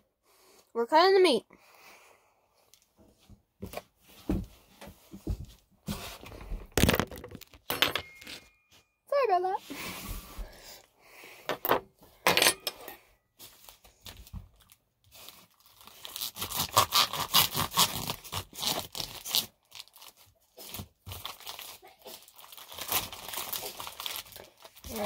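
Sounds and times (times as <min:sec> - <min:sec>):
plastic wrapper crinkling and tearing: 0:13.4 - 0:25.0.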